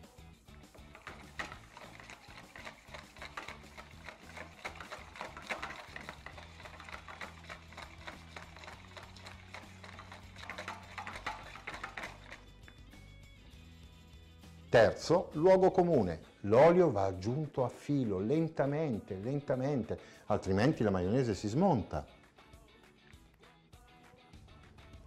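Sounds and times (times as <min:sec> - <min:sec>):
soft background music: 0:00.0 - 0:25.0
whisk beating in a bowl: 0:00.6 - 0:12.8.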